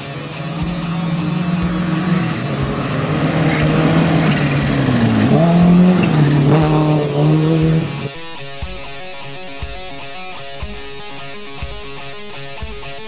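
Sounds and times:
rally car engine at full throttle: 0:00.0 - 0:08.2.

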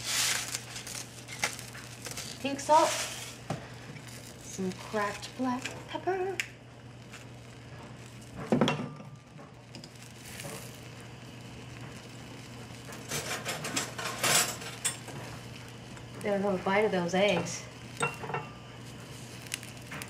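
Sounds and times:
egg sizzling in a pan: 0:00.0 - 0:20.0
kitchen utensils clinking: 0:17.3 - 0:18.6.

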